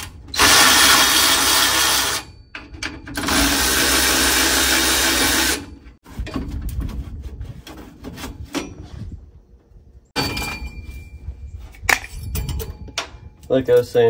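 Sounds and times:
power tool running: 0.4 - 2.3, 3.2 - 5.9.

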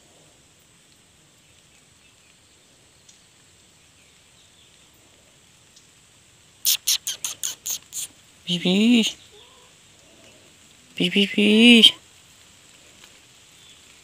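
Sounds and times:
faint outdoor background: 0.0 - 14.0
person making hissing calls: 6.6 - 9.7, 11.0 - 12.0.

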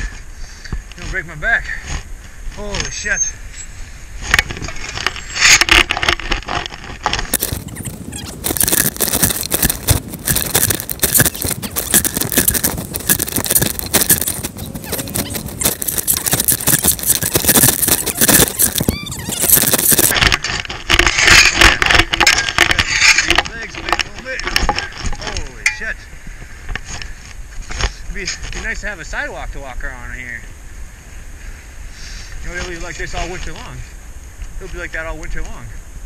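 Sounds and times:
jacket fabric rubbing microphone: 7.2 - 20.2.

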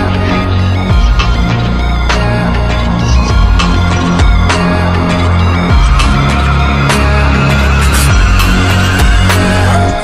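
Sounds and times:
hip-hop music with heavy bass: 0.0 - 10.0.

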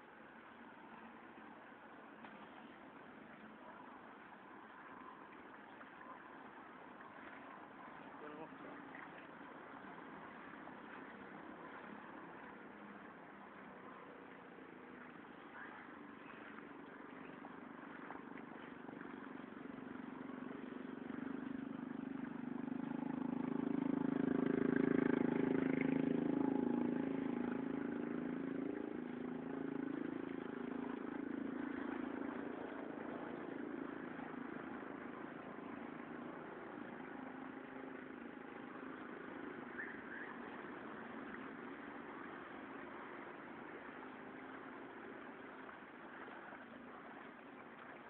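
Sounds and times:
motor vehicle engine passing: 15.0 - 46.4.

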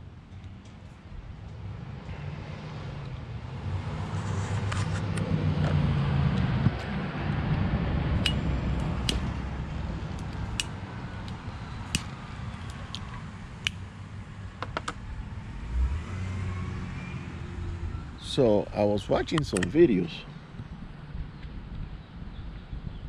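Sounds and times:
low mechanical rumble: 5.2 - 16.1
sharp clicks: 19.3 - 19.8.

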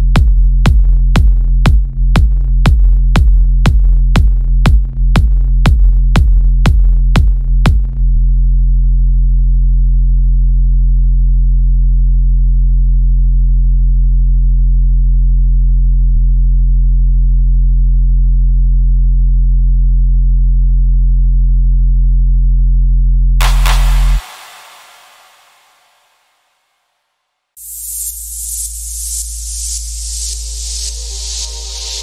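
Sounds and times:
hissing noise burst: 23.4 - 26.4
low synth bass drone: 23.4 - 26.4.

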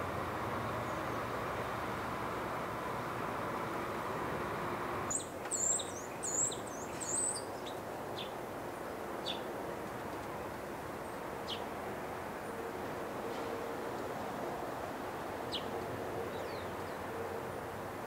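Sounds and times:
outdoor background noise: 0.0 - 18.0
small birds chirping: 5.0 - 8.4, 9.2 - 9.5.

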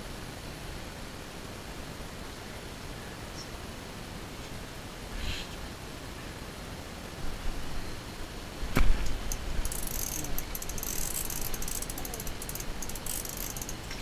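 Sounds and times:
fishing reel clicking: 9.3 - 14.0.

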